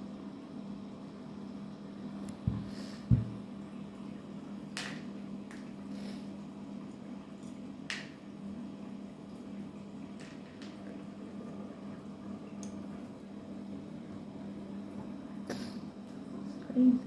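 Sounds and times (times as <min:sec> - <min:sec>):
water fountain pump humming: 0:00.0 - 0:17.0
dull thumps: 0:02.5 - 0:03.4.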